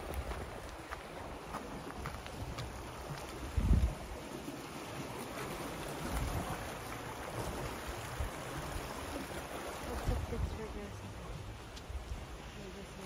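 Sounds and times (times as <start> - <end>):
wind on microphone: 0.0 - 4.2, 6.0 - 9.2, 9.8 - 13.0
creek water rushing: 0.0 - 13.0.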